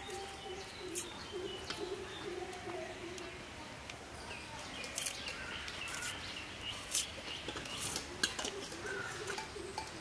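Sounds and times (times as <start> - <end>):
birds chirping: 0.0 - 10.0
onion skin crackling: 4.8 - 6.2.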